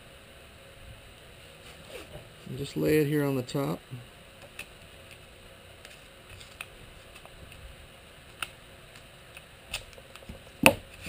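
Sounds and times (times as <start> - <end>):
tape clicks and handling noises: 4.4 - 7.6, 8.3 - 11.0.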